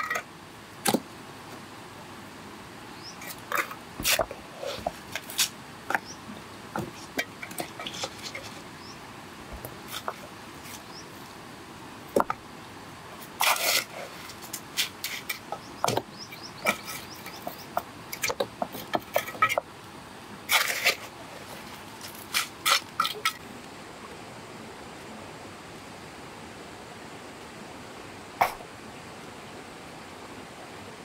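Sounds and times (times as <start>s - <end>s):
trowel scraping and tapping mortar: 3.3s - 6.1s, 6.8s - 8.6s, 9.6s - 10.9s, 13.4s - 19.7s, 20.5s - 23.4s.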